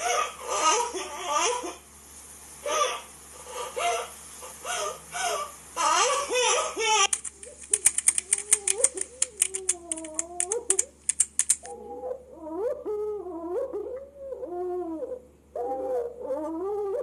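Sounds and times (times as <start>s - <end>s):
fingers typing on laptop keyboard: 7.1s - 11.7s.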